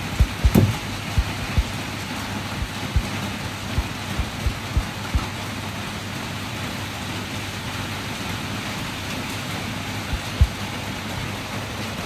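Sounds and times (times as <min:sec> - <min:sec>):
low thumps: 0:00.0 - 0:01.8, 0:02.6 - 0:05.3, 0:10.1 - 0:10.6
rain hissing: 0:00.0 - 0:12.0.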